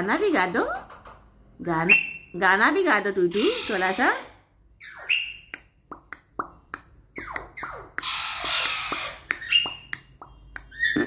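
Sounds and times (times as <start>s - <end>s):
parakeet chattering: 3.2s - 11.0s.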